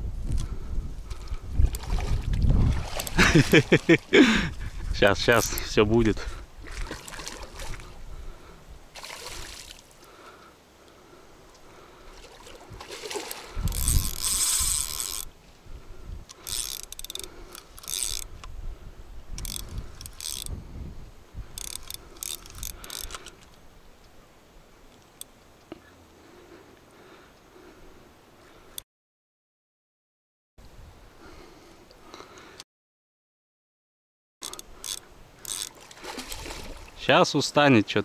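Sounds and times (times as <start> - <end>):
fishing reel drag and spool: 13.2 - 15.3, 16.3 - 18.4, 19.3 - 20.6, 21.5 - 23.6, 34.4 - 36.5.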